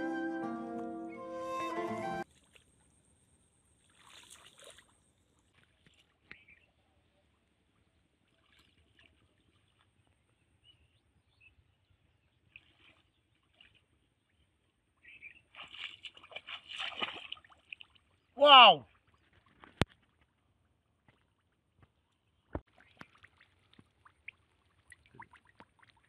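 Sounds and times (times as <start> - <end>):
feet splashing in water: 3.8 - 6.6, 8.1 - 10.5, 12.4 - 14.3, 15.1 - 18.2, 22.6 - 26.0.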